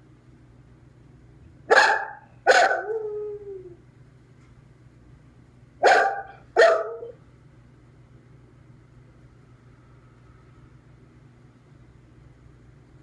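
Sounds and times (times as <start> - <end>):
dog howling: 1.7 - 3.8.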